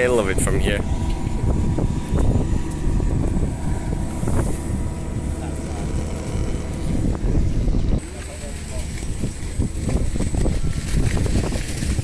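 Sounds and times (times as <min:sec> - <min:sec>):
faint steady hum: 0:00.0 - 0:11.6
wind rumbling on microphone: 0:00.0 - 0:12.0.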